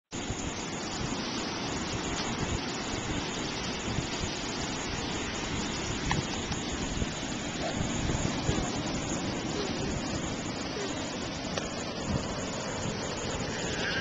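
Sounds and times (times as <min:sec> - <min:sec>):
ocean waves breaking: 0:00.2 - 0:14.0.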